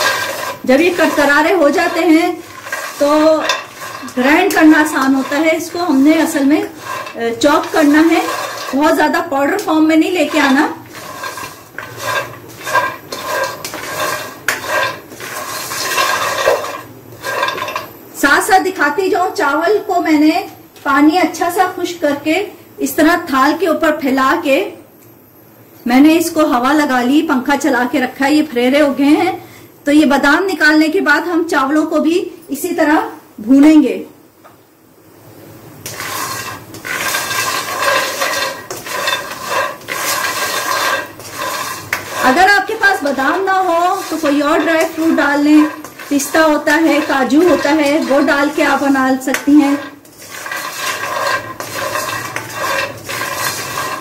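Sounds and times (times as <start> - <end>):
nuts rattling in a pan: 0.0 - 18.0, 35.8 - 54.0.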